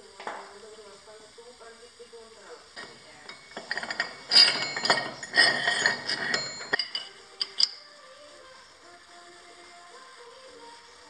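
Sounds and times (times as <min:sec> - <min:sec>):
metal clinking and scraping: 0:02.8 - 0:07.9.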